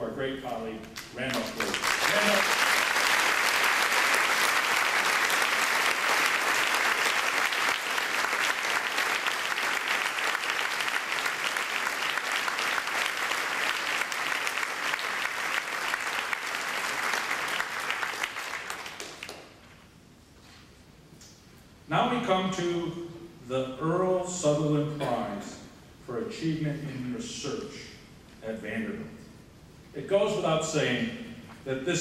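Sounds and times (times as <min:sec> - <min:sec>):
audience applauding: 0:01.3 - 0:19.6.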